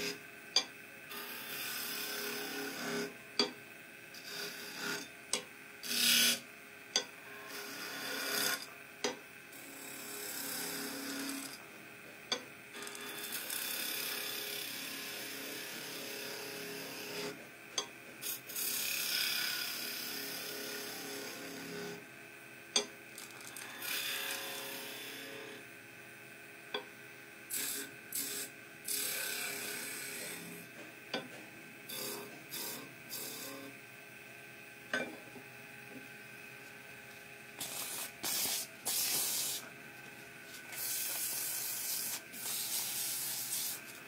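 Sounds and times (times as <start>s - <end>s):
faint motor hum: 0.0s - 44.0s
chisel rasping on lathe wood: 7.5s - 8.6s, 9.7s - 11.6s.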